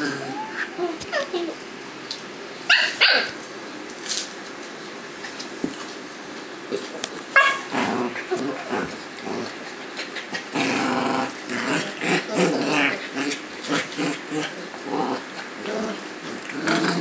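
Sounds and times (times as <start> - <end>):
puppies growling: 0.0 - 1.7, 6.7 - 17.0.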